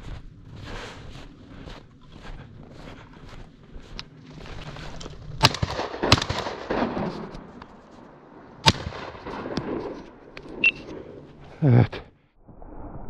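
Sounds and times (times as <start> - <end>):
shotgun shots: 5.4 - 7.5, 8.6 - 10.0.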